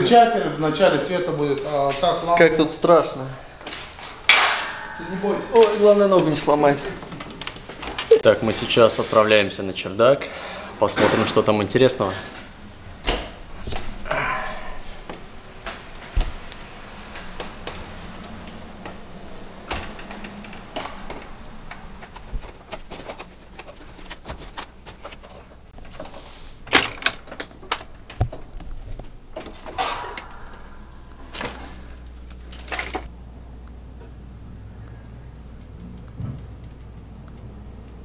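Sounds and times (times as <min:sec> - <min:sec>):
ladder knocking and creaking: 0:03.7 - 0:08.1.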